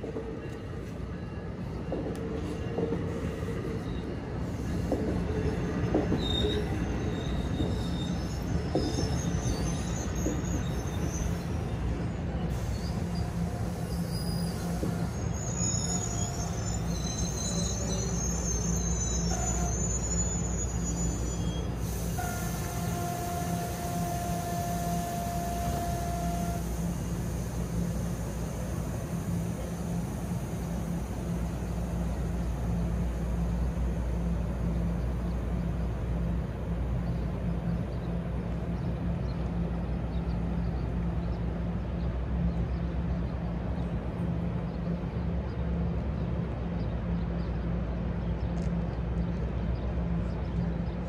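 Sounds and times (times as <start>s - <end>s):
train rumbling: 0.0s - 51.0s
wheel and brake squeals: 2.4s - 11.8s, 12.5s - 32.6s.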